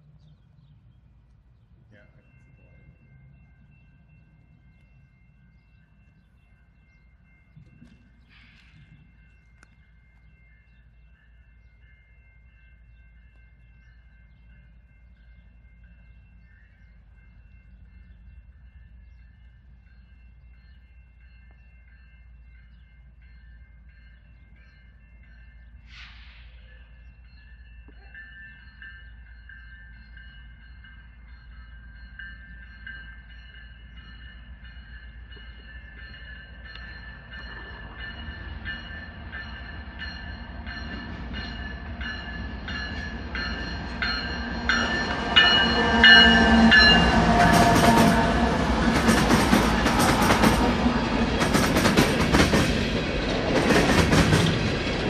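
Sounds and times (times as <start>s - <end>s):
freight train rolling rumble: 0.0s - 55.0s
train wheels clattering: 36.5s - 55.0s.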